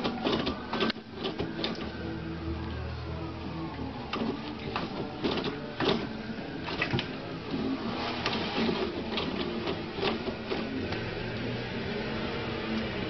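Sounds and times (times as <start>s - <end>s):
toilet paper ripping and rustling: 6.7s - 10.8s.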